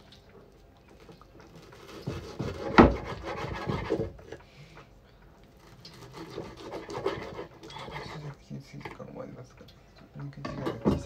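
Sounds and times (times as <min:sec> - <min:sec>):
knife cutting on wooden board: 0:01.8 - 0:04.1, 0:05.7 - 0:08.1.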